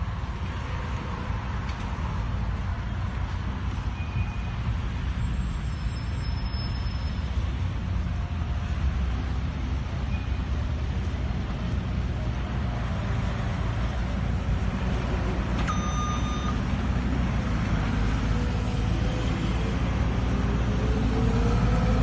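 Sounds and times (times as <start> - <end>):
passing road traffic: 0.0 - 22.0
high electronic beep: 15.7 - 16.6.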